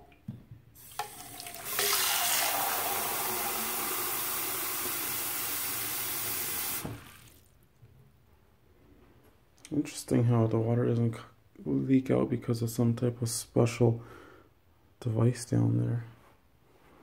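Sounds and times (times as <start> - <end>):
faucet running into plastic reservoir: 0.8 - 7.5.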